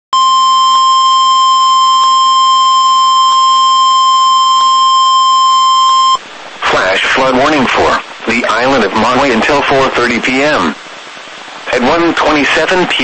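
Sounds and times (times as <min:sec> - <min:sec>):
steady high alarm tone: 0:00.2 - 0:06.2.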